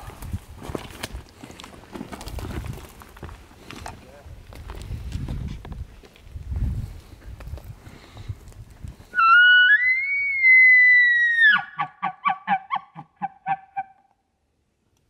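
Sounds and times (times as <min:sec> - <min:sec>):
elk bugle whistle: 0:09.2 - 0:14.1.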